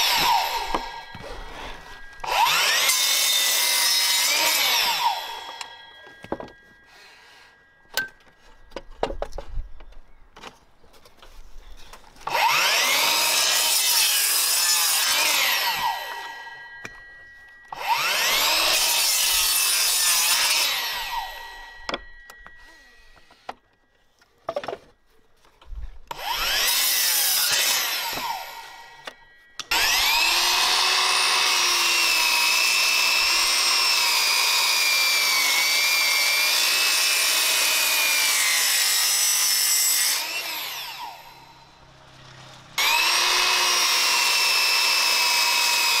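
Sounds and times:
mitre saw cutting timber: 0.0 - 7.0, 12.2 - 17.0, 17.7 - 23.6, 26.1 - 46.0
knocks and handling: 6.0 - 6.8, 7.9 - 12.3, 23.2 - 26.1.

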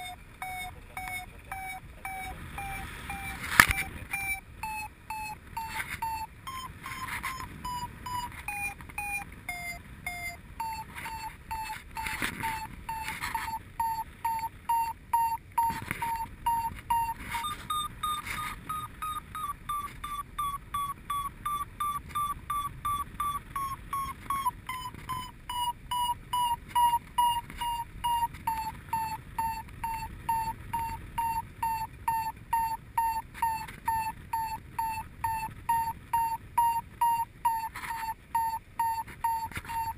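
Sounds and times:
variometer short beeps: 0.0 - 39.9.

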